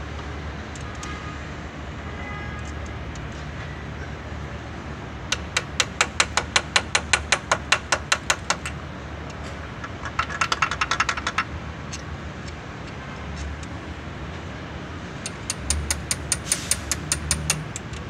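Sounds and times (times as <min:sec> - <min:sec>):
hammer tapping on metal: 0:05.3 - 0:08.8, 0:15.2 - 0:18.0.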